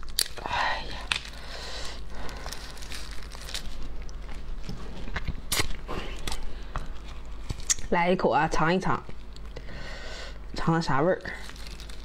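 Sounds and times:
lobster shell crackles and clicks: 0.0 - 1.4.

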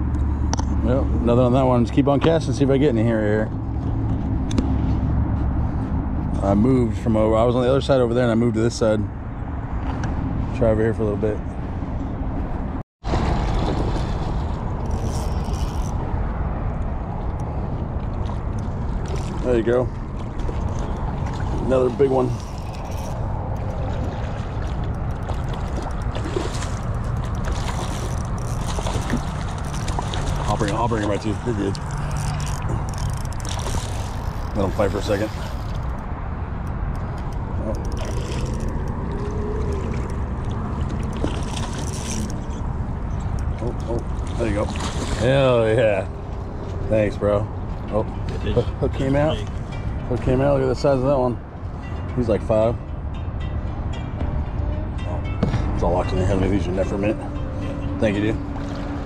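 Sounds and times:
steady low rumble: 0.0 - 8.6, 9.2 - 44.4
wind buffeting microphone: 9.2 - 59.0
fish splashing in water: 13.0 - 15.4, 18.1 - 35.9, 37.8 - 43.1, 44.0 - 45.3.

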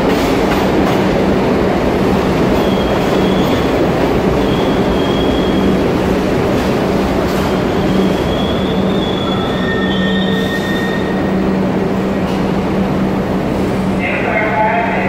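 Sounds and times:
subway train rumbling: 0.0 - 15.0
high-pitched brake squealing: 7.9 - 11.2.

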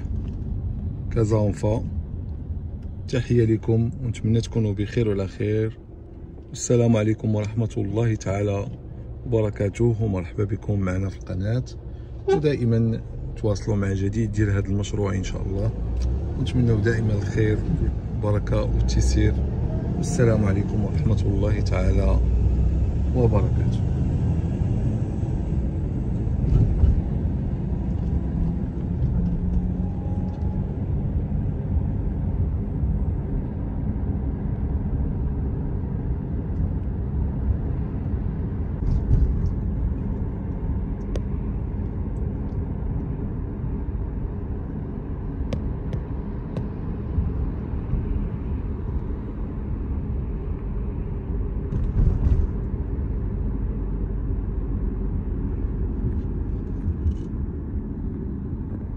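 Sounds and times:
car driving interior rumble: 0.0 - 58.9.

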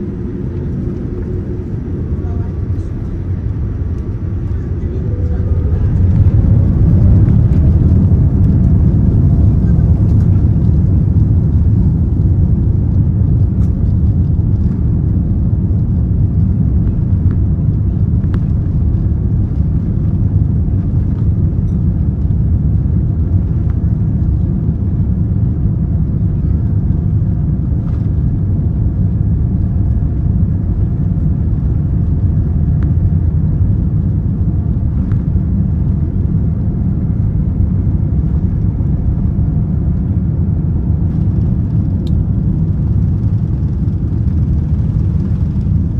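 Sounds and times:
rushing air: 0.0 - 10.5
jet engines rumbling: 0.0 - 45.9.

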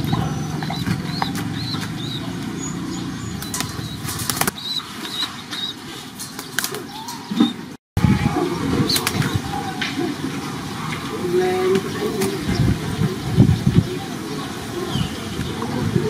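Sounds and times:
pigeon wings flapping: 3.4 - 6.9.

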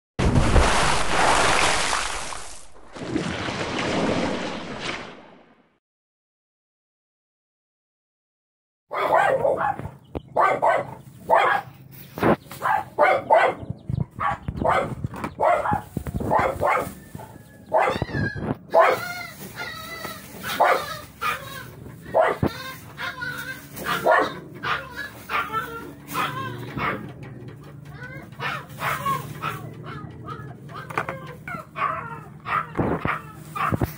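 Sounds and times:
dog yelping: 8.9 - 11.7, 12.6 - 33.9
dog barking: 8.9 - 11.8, 12.5 - 19.4, 20.4 - 27.1, 28.1 - 33.9.

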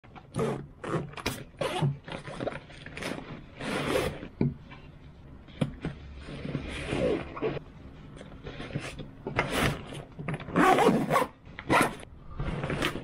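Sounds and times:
fabric bag rustling and scraping: 6.0 - 7.7, 8.4 - 13.0.

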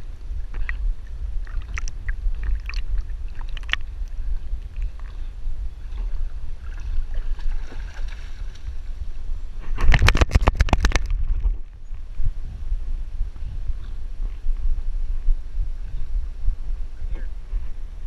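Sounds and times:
water churning rumble: 0.0 - 17.4
rush of water: 1.4 - 5.1.

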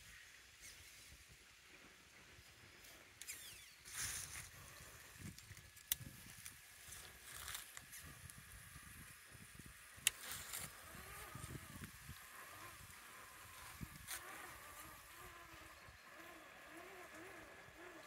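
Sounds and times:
toy tyres scraping on wood: 9.6 - 18.0.

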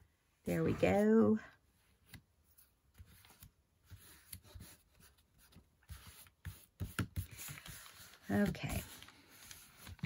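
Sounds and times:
paper rustling: 2.1 - 10.0.

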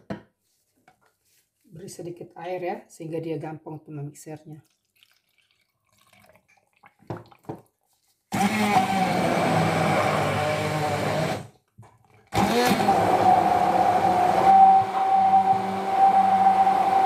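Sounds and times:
immersion blender whine: 8.3 - 11.5, 12.3 - 17.0.

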